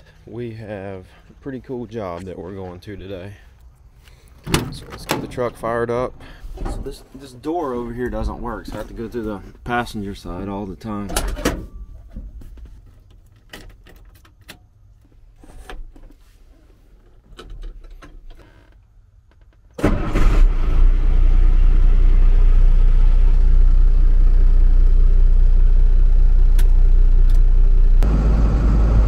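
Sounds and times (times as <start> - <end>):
truck engine starting and idling: 19.7 - 29.0.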